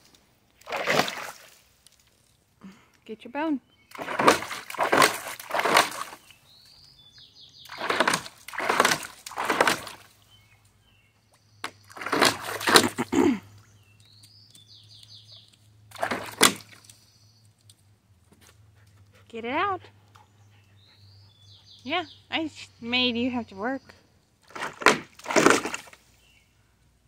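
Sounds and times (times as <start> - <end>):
dog splashing water: 0.6 - 1.6, 3.9 - 6.3, 7.6 - 10.2, 11.8 - 13.1, 15.9 - 16.9, 24.4 - 26.0
bird chirping: 3.6 - 4.0, 6.0 - 8.3, 10.0 - 12.1, 13.0 - 15.7, 16.7 - 17.7, 20.1 - 24.2, 26.1 - 26.7.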